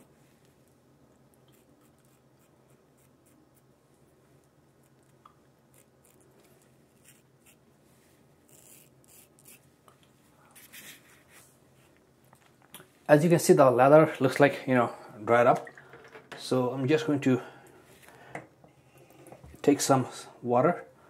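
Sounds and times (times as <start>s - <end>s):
razor scraping stubble: 5.7s - 7.6s, 8.5s - 9.7s.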